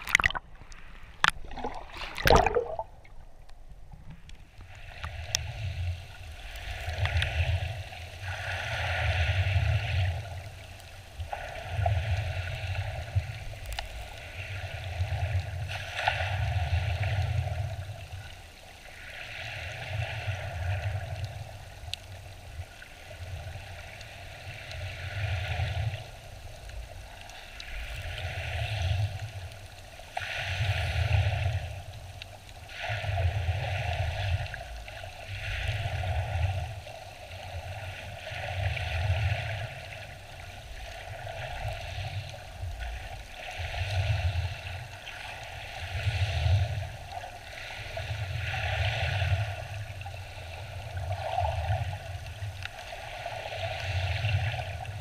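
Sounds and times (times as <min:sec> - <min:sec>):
muffled underwater waves: 0:00.0 - 0:13.6.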